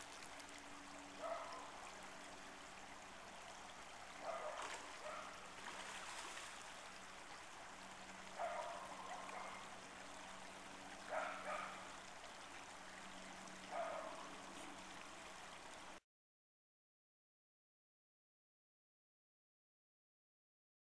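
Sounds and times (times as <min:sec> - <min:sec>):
creek water running: 0:00.0 - 0:16.0.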